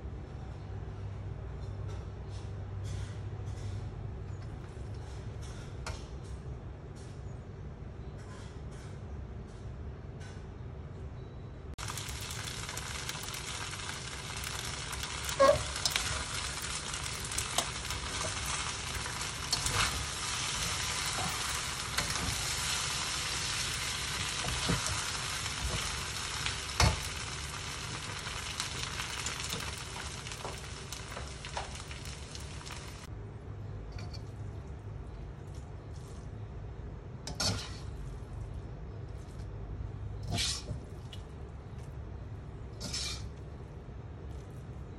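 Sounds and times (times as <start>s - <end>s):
noodles sizzling in a wok: 11.8s - 33.1s, 37.3s - 38.0s, 42.8s - 43.3s.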